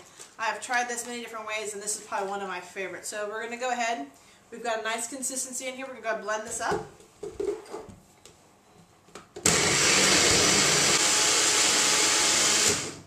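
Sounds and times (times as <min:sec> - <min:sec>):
blender running: 0:09.4 - 0:13.0.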